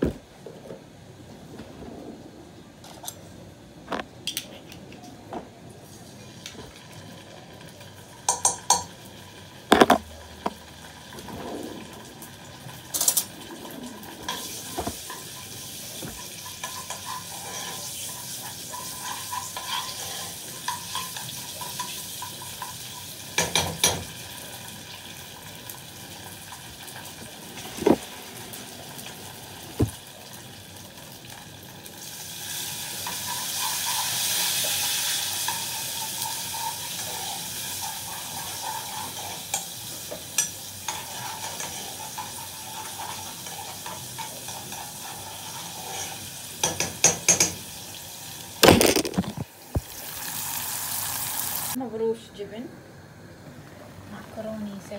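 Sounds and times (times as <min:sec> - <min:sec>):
sauce sizzling in a pan: 0:14.4 - 0:48.6, 0:49.7 - 0:51.8.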